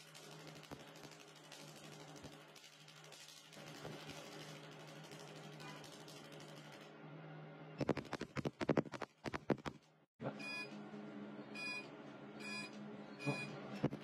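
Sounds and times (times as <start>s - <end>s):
machine beeping: 11.5s - 14.0s.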